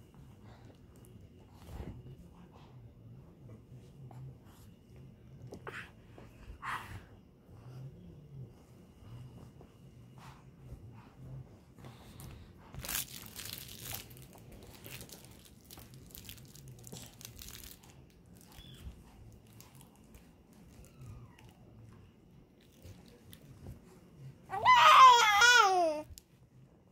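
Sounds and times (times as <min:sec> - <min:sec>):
soft crinkling and rustling: 0:08.3 - 0:24.5.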